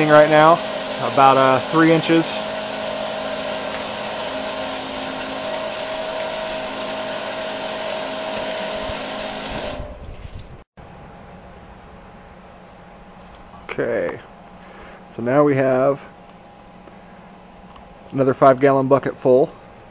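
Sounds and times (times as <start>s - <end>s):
spraying water hiss: 0.0s - 10.0s
water pump whine: 0.0s - 11.1s.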